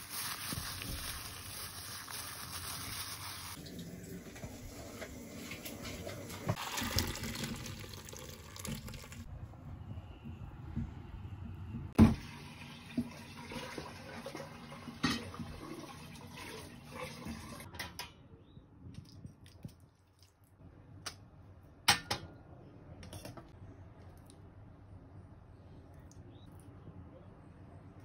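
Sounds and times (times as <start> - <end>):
tap water running: 3.5 - 9.3, 12.0 - 17.7.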